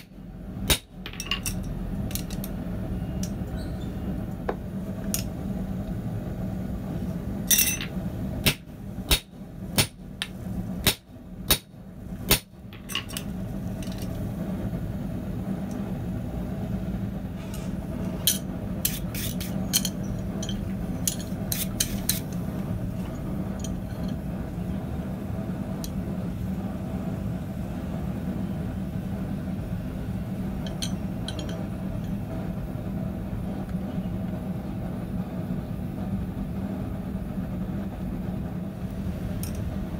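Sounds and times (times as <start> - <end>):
hammer striking steel: 0.7 - 1.6, 10.8 - 11.7.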